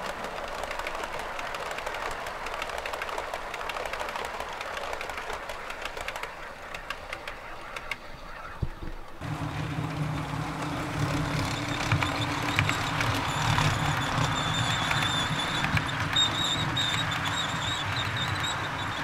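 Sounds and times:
model train wheels rumbling: 0:00.0 - 0:19.0
wheels clicking over rail joints: 0:00.0 - 0:19.0.

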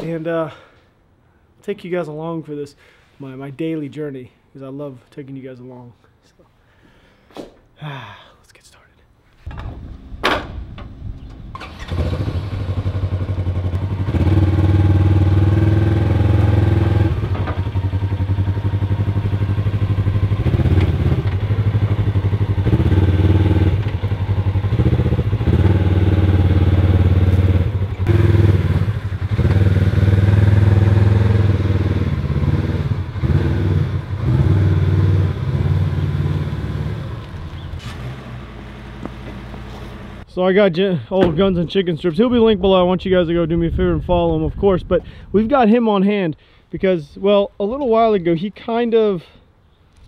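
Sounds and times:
utility vehicle engine revving: 0:09.6 - 0:40.3.

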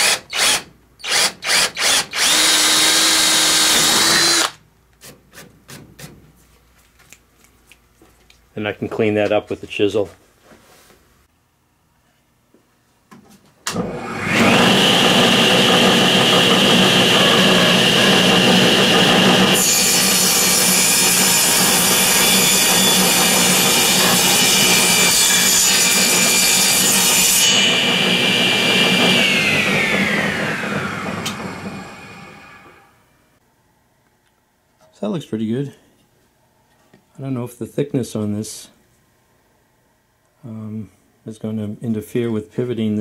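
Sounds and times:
saw cutting wood: 0:00.0 - 0:04.6, 0:13.7 - 0:32.9
table saw motor whine: 0:13.7 - 0:33.1.

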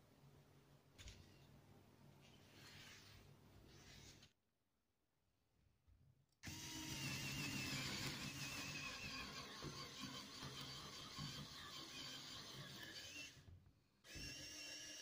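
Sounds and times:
electric drill boring into wood: 0:06.4 - 0:15.0.

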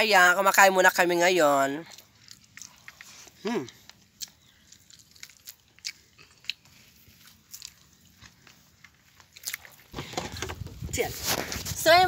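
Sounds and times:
person chewing food: 0:01.8 - 0:10.0
soft crunches: 0:01.8 - 0:12.0.

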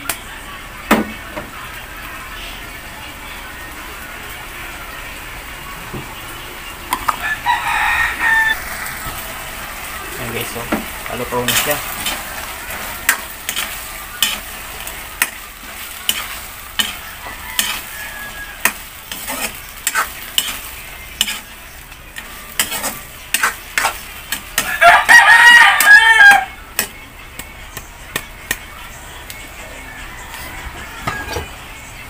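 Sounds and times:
shrimp sizzling in butter: 0:03.5 - 0:29.4
rooster crowing: 0:07.0 - 0:09.9, 0:16.8 - 0:19.0, 0:24.6 - 0:26.6, 0:29.6 - 0:31.6.

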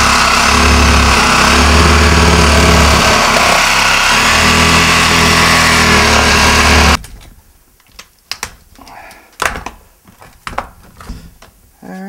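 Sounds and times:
reciprocating saw cutting plastic: 0:00.0 - 0:07.0
clicks knocks and scraping: 0:07.0 - 0:11.6.

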